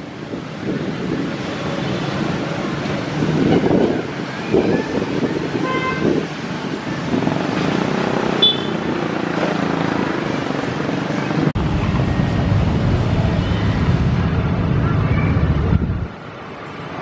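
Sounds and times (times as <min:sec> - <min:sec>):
low wind rumble on microphone: 0:00.0 - 0:08.0, 0:10.7 - 0:16.2
motorcycles passing: 0:00.0 - 0:17.0.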